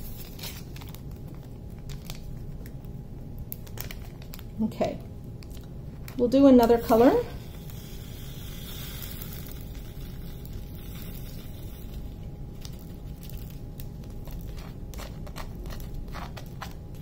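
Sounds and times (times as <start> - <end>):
small plastic beads sliding rattling: 6.9 - 12.2.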